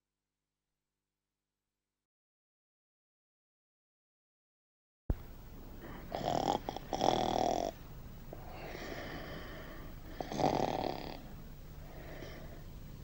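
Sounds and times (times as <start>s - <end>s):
man snoring: 5.9s - 7.8s, 8.4s - 11.3s.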